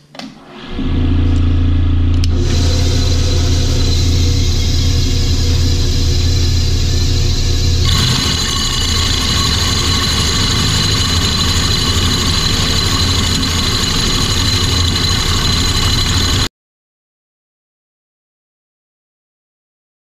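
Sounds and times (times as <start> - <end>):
motor hum: 0.4 - 16.5
hole saw cutting wood: 2.4 - 16.5.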